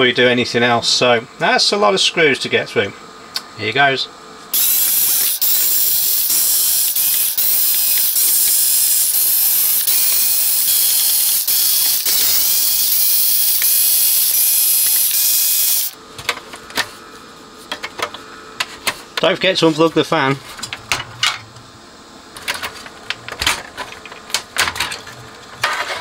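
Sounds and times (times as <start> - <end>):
electric screwdriver motor: 4.6 - 16.0.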